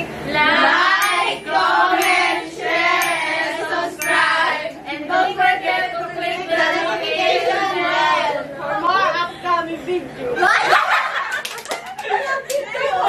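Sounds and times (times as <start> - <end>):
women singing in unison: 0.3 - 8.6.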